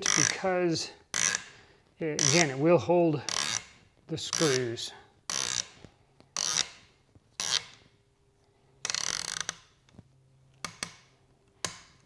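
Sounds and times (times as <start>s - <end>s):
screw creaking into plastic: 1.1s - 1.5s, 3.3s - 7.9s, 8.8s - 9.8s.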